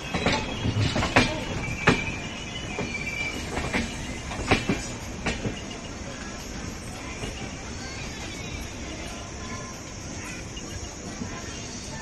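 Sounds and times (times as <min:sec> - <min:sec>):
train wheels clacking over rail joints: 0:00.0 - 0:05.8
train rumble: 0:00.0 - 0:12.0.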